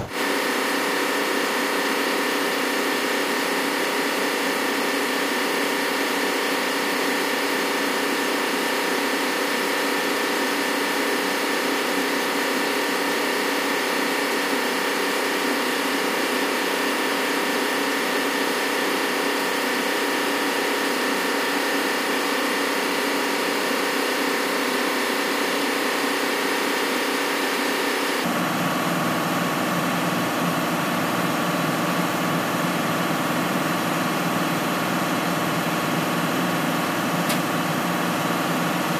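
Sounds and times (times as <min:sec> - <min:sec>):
engine room machinery drone: 0:00.0 - 0:38.9.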